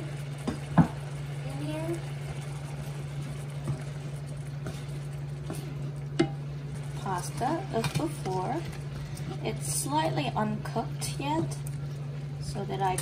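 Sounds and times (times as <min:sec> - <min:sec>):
steady low hum: 0:00.0 - 0:13.0
stirring thick sauce: 0:02.2 - 0:09.6
spatula knocking on frying pan: 0:05.4 - 0:06.4.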